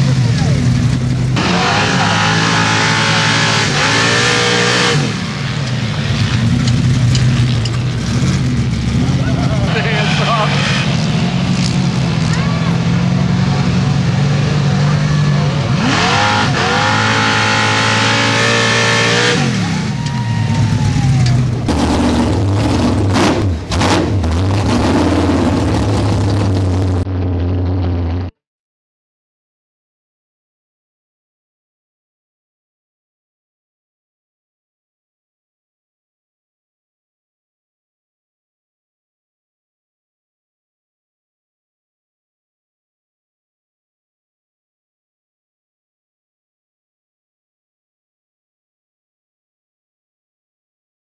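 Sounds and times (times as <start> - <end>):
vee eight engine revving: 0.0 - 28.3.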